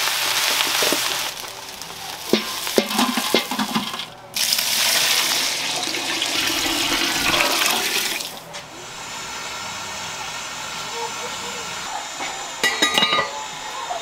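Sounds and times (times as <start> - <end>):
water pouring into a pot: 0.0 - 8.4.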